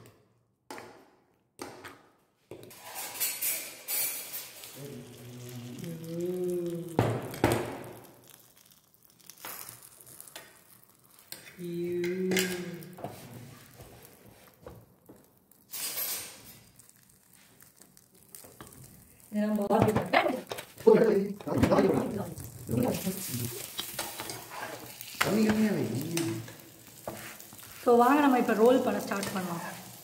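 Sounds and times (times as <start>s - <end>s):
metal spoon scraping pan: 2.7s - 4.7s, 15.7s - 16.6s, 22.9s - 29.9s
batter sizzling in hot oil: 2.7s - 30.0s
person speaking: 19.3s - 23.6s, 25.2s - 26.6s.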